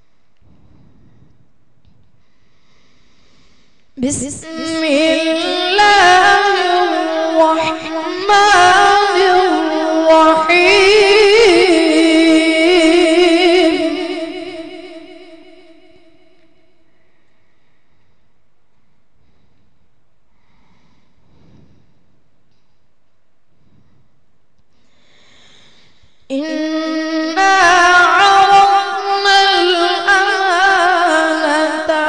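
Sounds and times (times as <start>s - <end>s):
boy reciting melodically: 4.0s - 16.3s, 26.3s - 32.0s.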